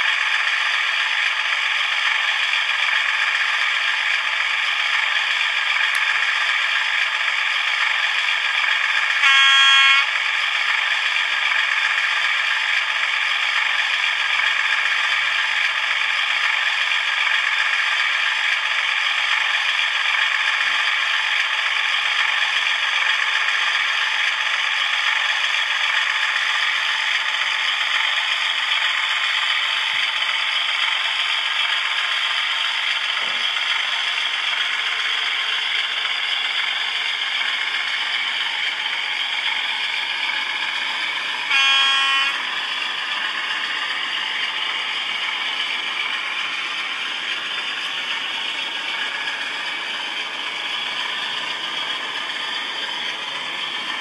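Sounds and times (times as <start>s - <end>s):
model train rattling on track: 0.0s - 54.0s
short train horn: 9.2s - 10.2s, 41.5s - 42.6s.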